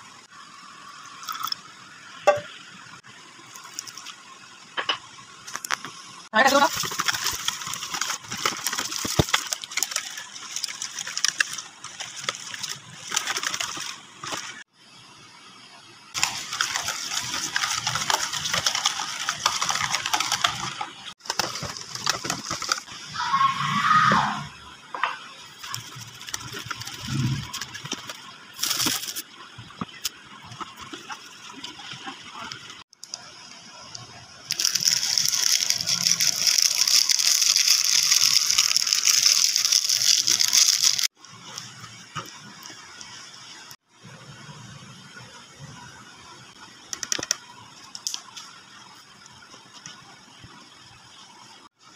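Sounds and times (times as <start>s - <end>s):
plastic packet crinkling: 6.5s - 14.6s, 16.2s - 22.9s, 25.6s - 29.2s, 34.5s - 41.2s.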